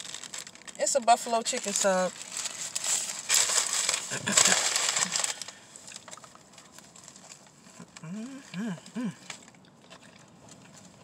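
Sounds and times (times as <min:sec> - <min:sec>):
wrapper paper crinkling: 0:00.0 - 0:08.6
quiet chewing: 0:05.4 - 0:11.0
person humming mmm: 0:07.8 - 0:09.3.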